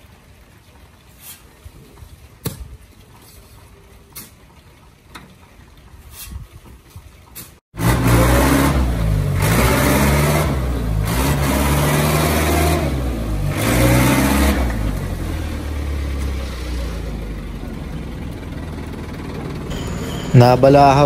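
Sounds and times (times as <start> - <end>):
truck engine revving: 7.8 - 20.8
rushing noise: 19.5 - 21.0.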